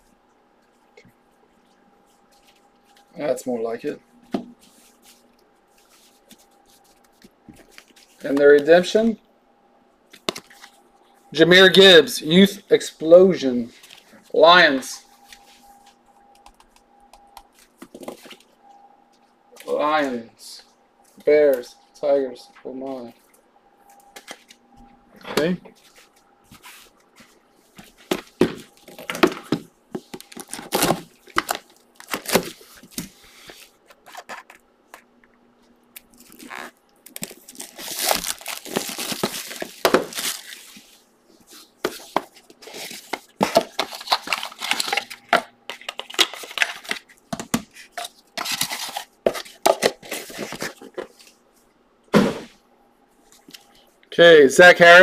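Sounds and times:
plastic shrink wrap tearing: 30.2s - 32.6s, 36.0s - 40.6s.

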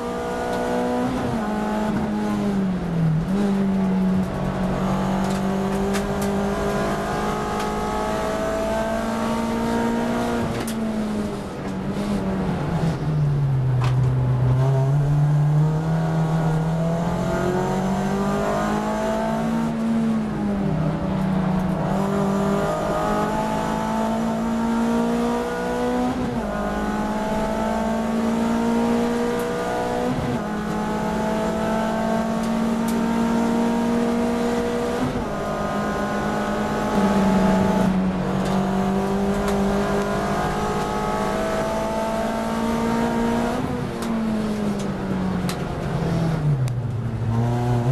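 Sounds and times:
race car engine accelerating: 0.0s - 47.9s.

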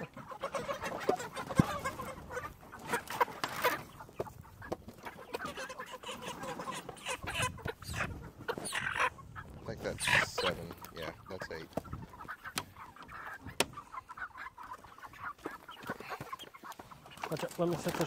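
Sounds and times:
chickens clucking: 0.0s - 18.0s
knocks and scuffling: 14.6s - 18.0s.

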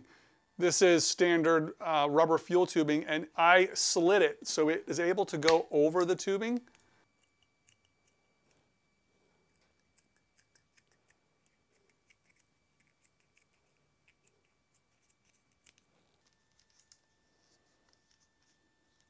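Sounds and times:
scissors snipping: 9.8s - 15.9s.

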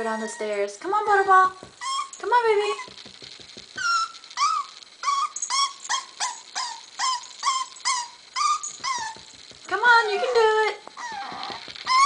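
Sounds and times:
puppy whining: 0.0s - 0.8s, 1.8s - 2.2s, 3.7s - 12.0s.

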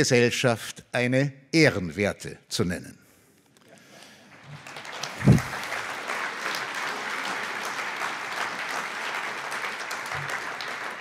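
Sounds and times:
audience applauding: 4.2s - 11.0s
short low thud: 5.2s - 5.5s.

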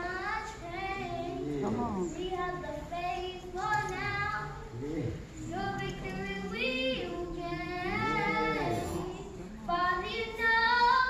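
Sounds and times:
children's choir singing: 5.6s - 11.0s.

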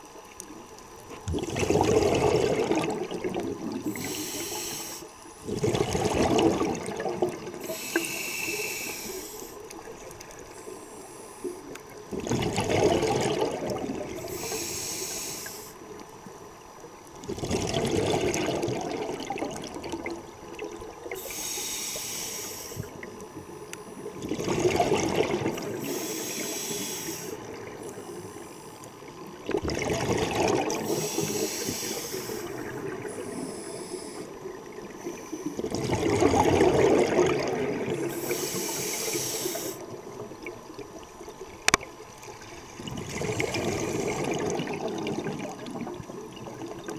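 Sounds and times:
bubbling exhaust on exhale: 1.2s - 16.0s, 17.2s - 41.0s, 42.4s - 46.9s
regulator inhale hiss: 3.8s - 5.5s, 7.5s - 9.8s, 10.4s - 11.8s, 14.1s - 16.0s, 21.1s - 23.8s, 25.5s - 29.0s, 30.8s - 35.6s, 38.0s - 40.0s.

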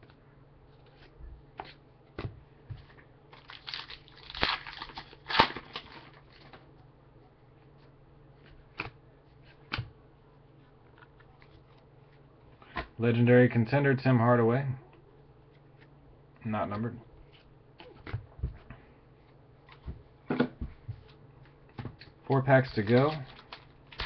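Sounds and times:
crinkling and rustling: 17.2s - 24.0s.

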